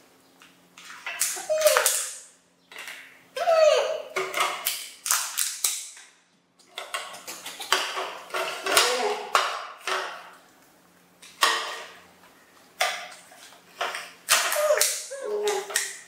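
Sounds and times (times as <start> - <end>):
plastic cups and plates clicking: 6.6 - 10.4.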